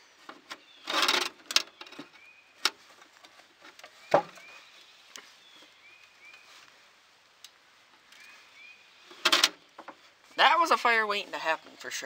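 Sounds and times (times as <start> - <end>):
scraping rustle: 0.0 - 7.0.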